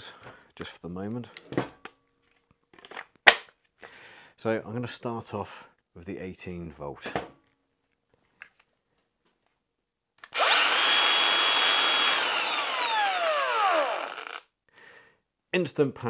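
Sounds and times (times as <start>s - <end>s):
angle grinder whining: 10.2s - 14.4s.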